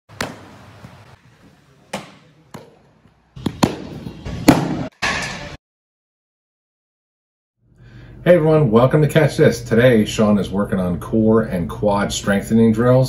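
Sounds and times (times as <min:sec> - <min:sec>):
baseballs smacking into mitt: 0:00.1 - 0:01.0, 0:01.9 - 0:04.9.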